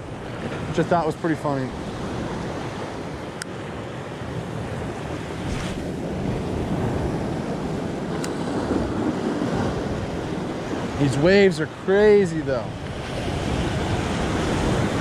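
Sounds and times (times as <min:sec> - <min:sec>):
wind buffeting microphone: 0:00.0 - 0:15.0
surf breaking over rocks: 0:04.6 - 0:15.0.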